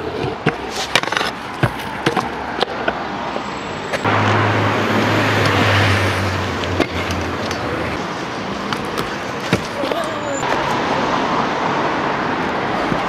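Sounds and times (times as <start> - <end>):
scooter wheels rolling over paving: 0.0 - 3.0, 8.6 - 10.7.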